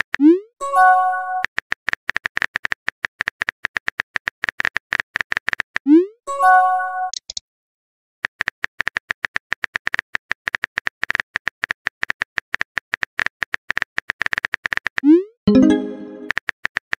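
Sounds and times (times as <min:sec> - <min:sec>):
short musical notes: 0:15.5 - 0:16.3.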